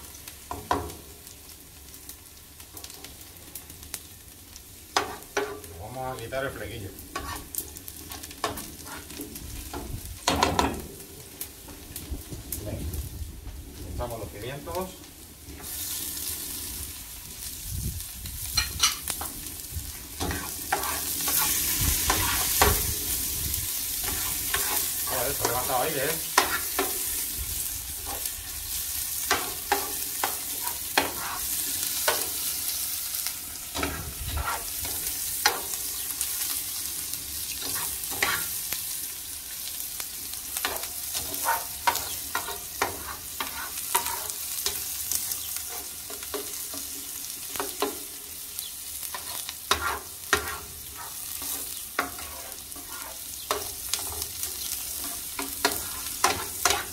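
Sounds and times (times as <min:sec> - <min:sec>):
vegetables sizzling in a pan: 0:00.0 - 0:56.9.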